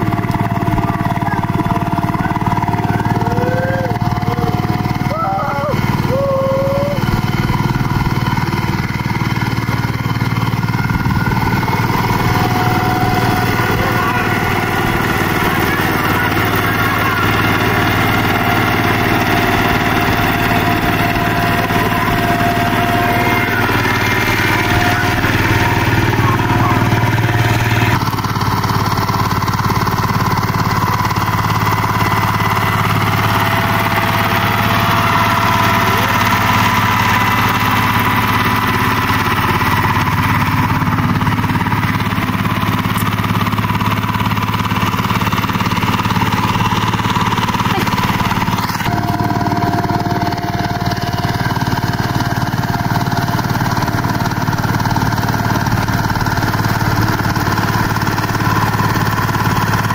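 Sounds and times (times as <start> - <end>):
diesel tiller engine running: 0.0 - 59.9.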